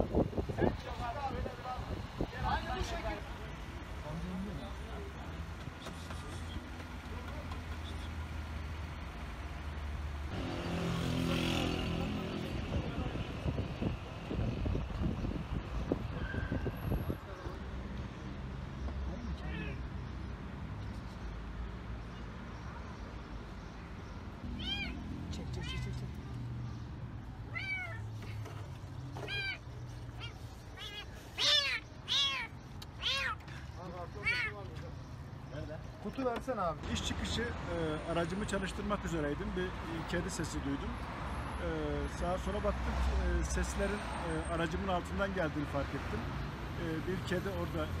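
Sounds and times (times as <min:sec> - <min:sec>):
low traffic rumble: 0:00.0 - 0:48.0
kitten meowing: 0:24.4 - 0:26.0, 0:27.5 - 0:28.1, 0:29.2 - 0:33.4, 0:34.2 - 0:34.6.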